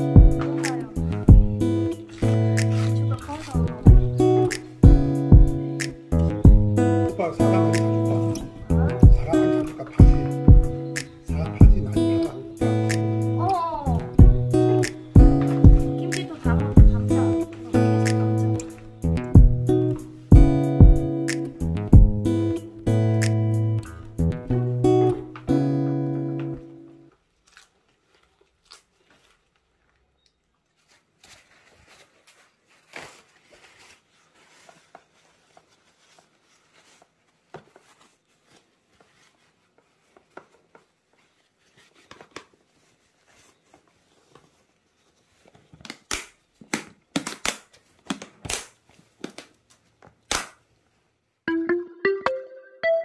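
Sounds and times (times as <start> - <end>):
guitar music: 0.0 - 27.1, 51.5 - 53.0.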